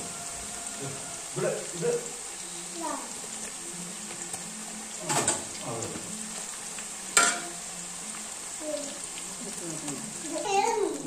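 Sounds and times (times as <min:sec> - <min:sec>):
food sizzling in hot oil: 0:00.0 - 0:11.0
spoon clinking in pan: 0:07.2 - 0:07.5.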